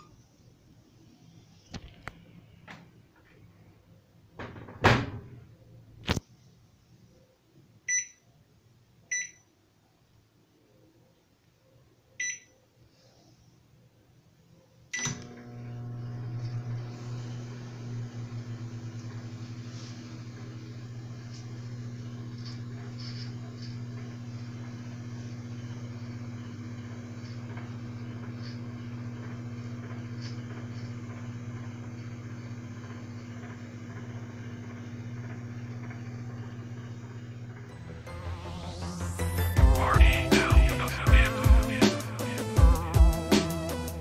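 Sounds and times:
microwave humming: 1.8s - 6.2s, 14.9s - 44.0s.

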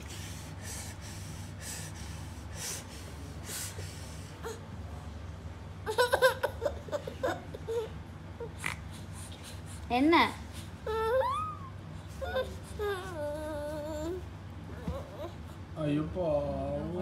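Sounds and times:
soft breathing: 0.0s - 4.7s.

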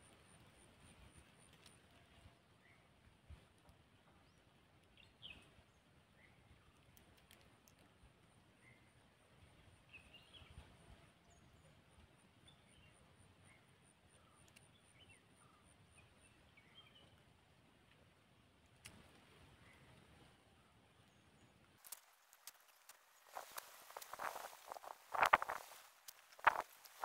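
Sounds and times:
riverside ambience: 21.7s - 27.0s.

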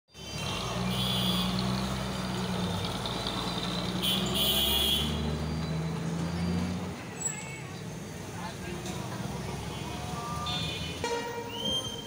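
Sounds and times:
truck diesel engine droning: 0.1s - 7.3s.

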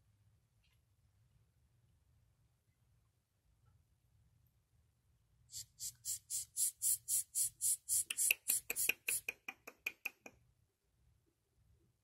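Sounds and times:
sugar glider raspy hissing: 5.5s - 9.4s.

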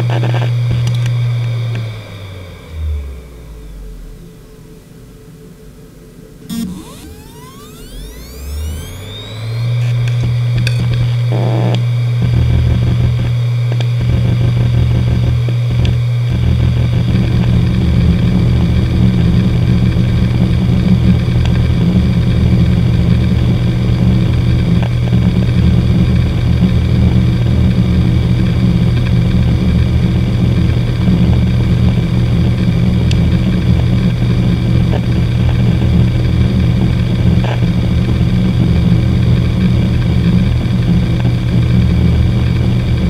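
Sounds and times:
hard drive spindle hum: 6.5s - 11.8s.

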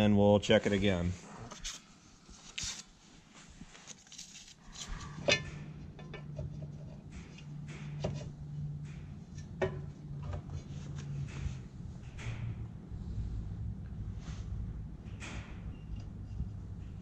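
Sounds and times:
low steady hum: 0.0s - 17.0s
metallic clicks and knocks: 5.2s - 12.7s.

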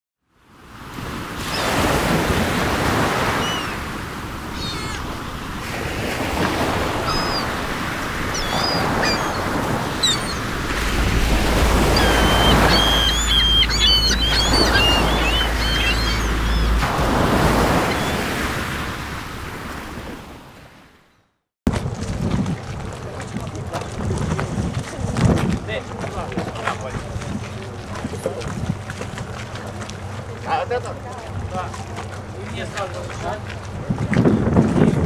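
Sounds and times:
water on estuary: 0.2s - 35.0s
wind: 0.2s - 35.0s
gulls calling: 1.4s - 19.9s
low rumble: 10.4s - 17.2s.

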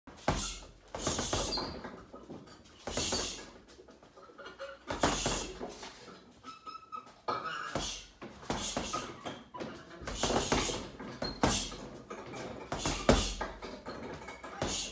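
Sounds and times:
gloves punching heavy bag: 0.1s - 1.8s, 2.9s - 3.5s, 4.9s - 5.6s, 7.8s - 9.2s, 10.0s - 11.9s, 12.7s - 13.6s, 14.6s - 14.9s.

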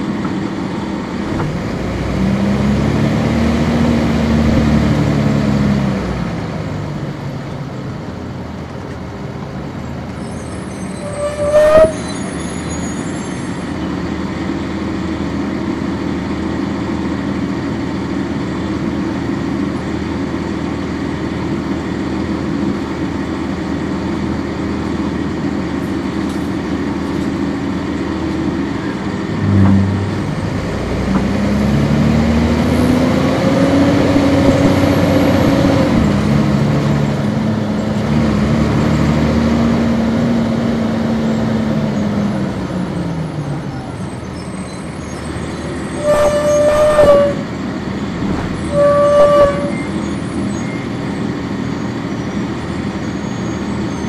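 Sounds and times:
bus diesel engine drone: 0.0s - 54.0s
short sharp squeal: 10.1s - 13.9s, 28.8s - 31.2s, 44.0s - 47.5s, 48.3s - 54.0s.

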